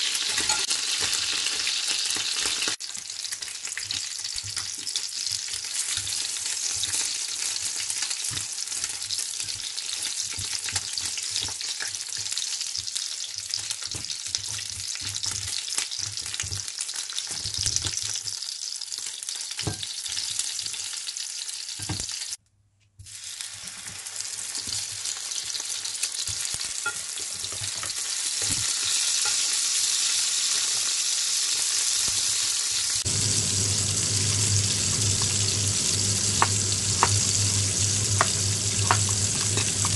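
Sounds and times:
food sizzling in hot oil: 0.0 - 22.4, 23.0 - 39.9
low hum: 33.1 - 39.9.

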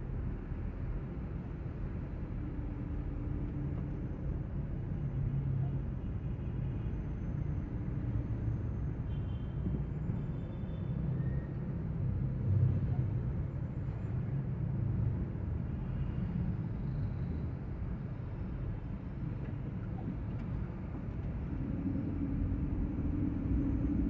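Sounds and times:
traffic noise: 0.0 - 24.0
car engine rumble: 17.4 - 24.0.

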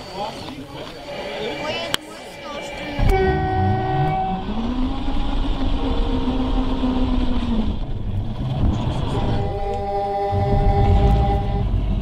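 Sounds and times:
steady electronic tone: 0.7 - 11.8
simulated diesel engine revving: 2.7 - 12.0.

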